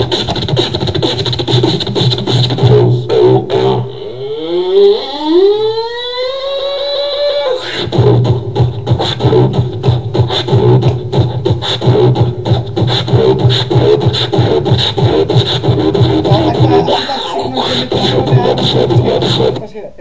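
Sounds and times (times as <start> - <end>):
beatboxing percussive hits and clicks: 0.0 - 19.7
low bass tone: 11.9 - 19.5.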